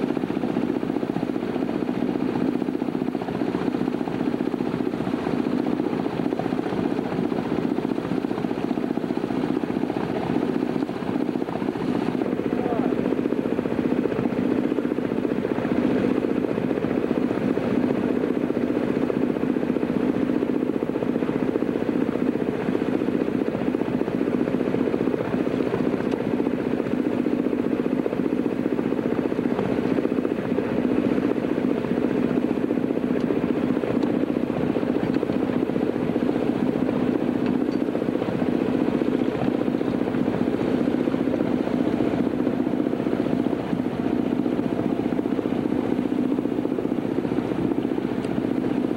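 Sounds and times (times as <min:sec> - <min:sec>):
boat engine running: 0:02.0 - 0:18.0.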